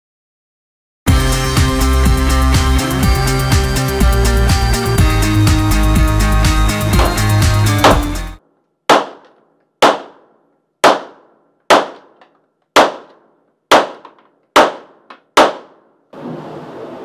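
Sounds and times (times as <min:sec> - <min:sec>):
pistol shots: 0:08.9 - 0:12.2, 0:12.8 - 0:15.9.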